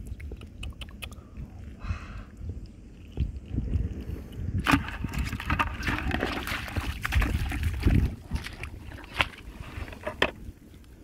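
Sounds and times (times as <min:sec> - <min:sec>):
microphone handling rumble: 0:02.5 - 0:10.6
muddy water sloshing and splashing: 0:02.9 - 0:10.8.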